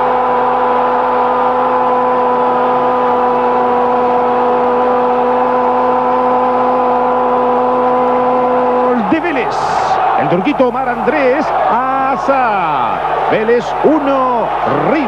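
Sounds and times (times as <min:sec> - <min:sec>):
stadium crowd noise: 0:00.0 - 0:15.0
commentator shouting: 0:06.9 - 0:15.0.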